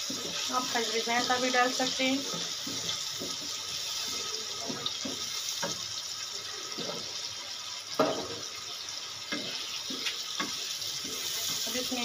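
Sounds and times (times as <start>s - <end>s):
wooden spatula scraping: 0.0s - 5.8s, 9.3s - 12.0s
masala sizzling in a pan: 0.0s - 12.0s
spatula knocking against pan: 8.0s - 8.4s, 9.3s - 10.7s.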